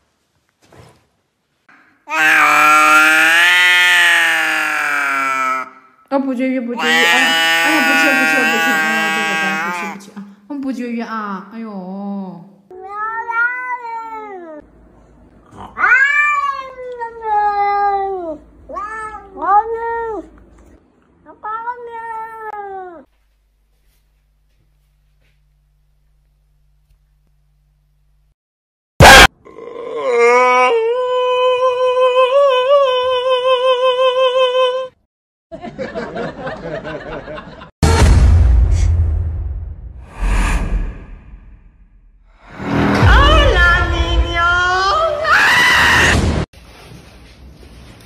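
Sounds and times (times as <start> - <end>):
cat meowing: 6.8 - 10.0, 12.8 - 14.6, 15.8 - 20.2
puppy howling: 6.8 - 10.0.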